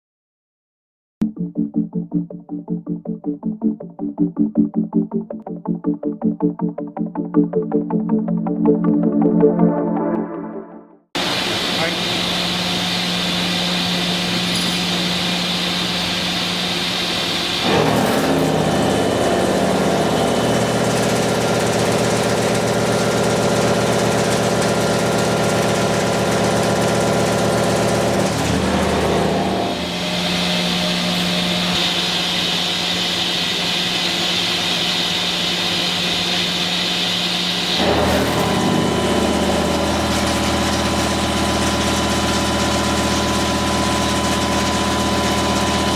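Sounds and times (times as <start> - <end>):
milling machine cutting steel: 11.2 - 45.9.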